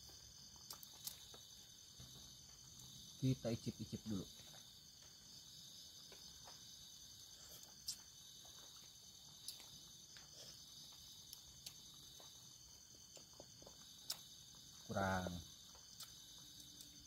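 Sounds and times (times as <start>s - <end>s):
night insects chorus: 0.0s - 17.0s.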